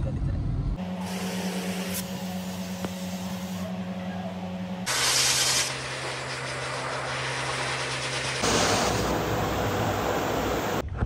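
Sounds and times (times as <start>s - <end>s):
motor hum: 0.6s - 10.9s
blow dryer blowing air: 0.8s - 3.8s, 4.8s - 10.8s
water hissing from hose nozzle: 4.9s - 10.8s.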